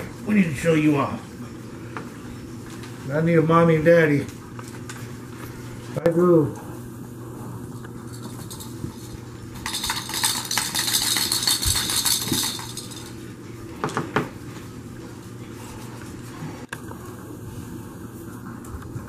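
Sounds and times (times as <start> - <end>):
jingle ball bell rattling: 9.6 - 13.1.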